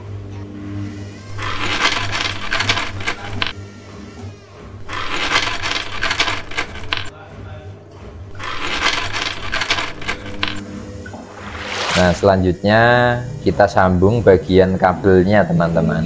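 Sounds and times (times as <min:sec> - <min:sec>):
wrench clicking and rattling: 0:08.4 - 0:10.6.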